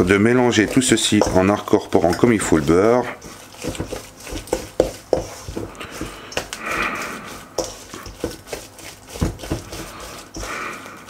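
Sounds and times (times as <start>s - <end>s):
spatula scraping a metal bowl: 0.0s - 11.0s
breathy sound: 9.8s - 11.0s.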